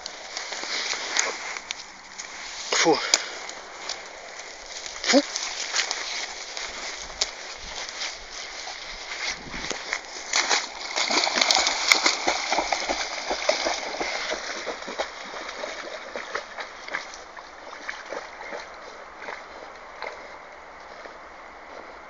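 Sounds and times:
dogs splashing in water: 0:08.5 - 0:20.2.

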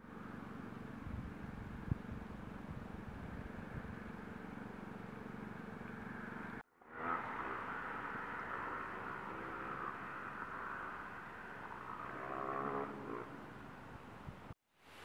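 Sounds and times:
distant road traffic: 0:00.0 - 0:14.6
steady hiss: 0:14.7 - 0:15.0.

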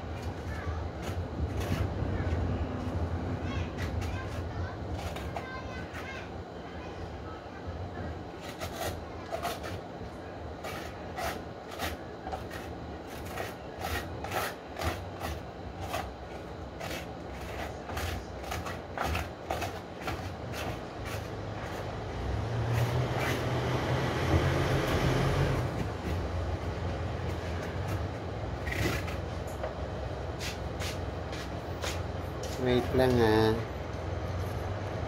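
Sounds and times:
knife scraping hard fruit shell: 0:00.2 - 0:02.0, 0:03.6 - 0:06.2, 0:08.4 - 0:09.8, 0:10.6 - 0:24.0, 0:27.2 - 0:29.7.

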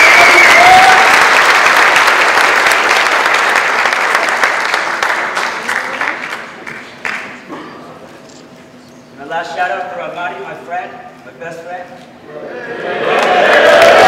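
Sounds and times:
audience applause: 0:00.0 - 0:07.4, 0:12.9 - 0:14.0.

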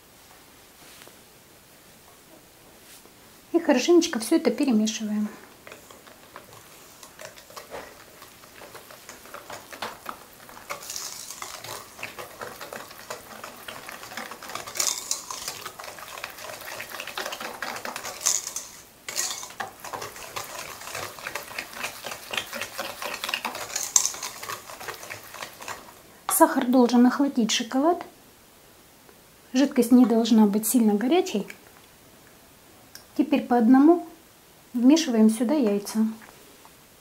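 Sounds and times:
whisk scraping a metal bowl: 0:05.6 - 0:26.0.

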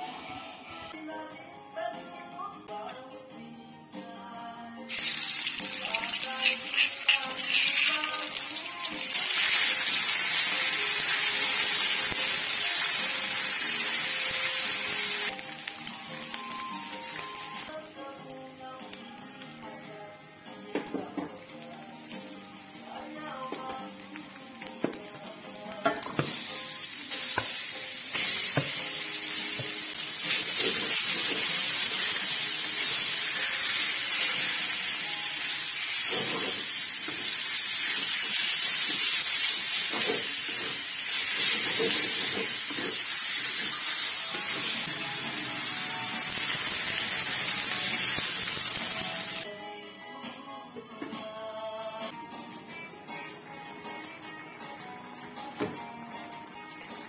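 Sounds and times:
meat sizzling in hot oil: 0:04.9 - 0:49.5.

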